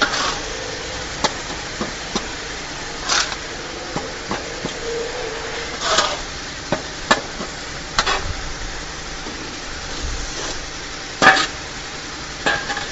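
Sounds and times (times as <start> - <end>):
metal shovel scraping powdered feed: 0.0 - 6.8
steady hiss: 0.0 - 12.9.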